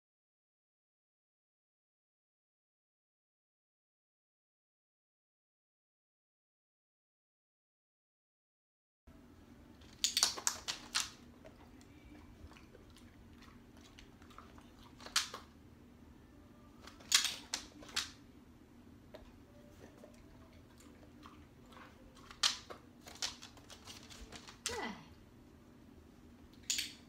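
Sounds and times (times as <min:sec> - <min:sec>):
dog-training clicker clicking: 0:10.0 - 0:11.2, 0:16.8 - 0:18.2, 0:26.6 - 0:27.0.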